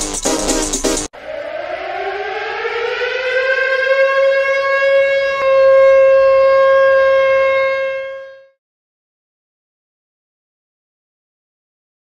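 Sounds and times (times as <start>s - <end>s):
siren wailing: 1.1s - 8.6s.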